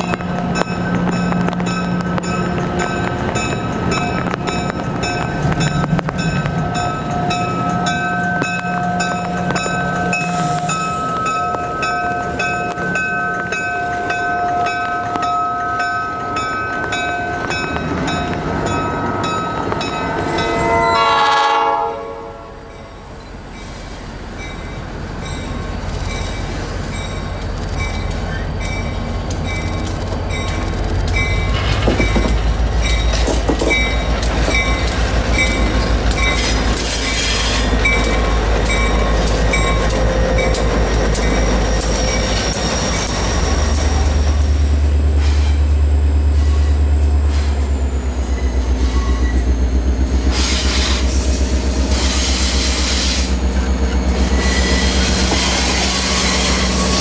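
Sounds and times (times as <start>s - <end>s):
rail clicks: 0.0s - 21.3s, 22.6s - 57.0s
diesel locomotive engine rumble: 0.0s - 57.0s
faint wheel squeal: 54.3s - 57.0s.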